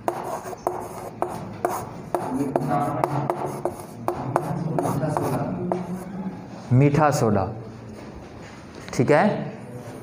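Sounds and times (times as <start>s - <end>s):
chalk writing on a blackboard: 0.0s - 6.1s.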